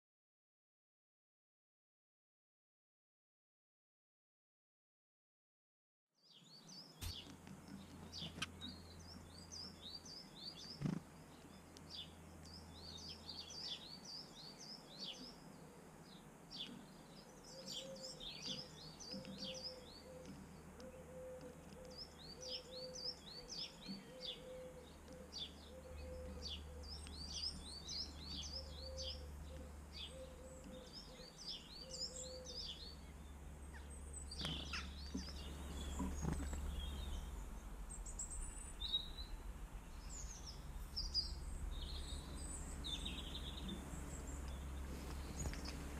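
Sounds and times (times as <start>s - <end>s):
songbirds twittering: 6.2s - 45.9s
low repeating bird note: 34.6s - 45.9s.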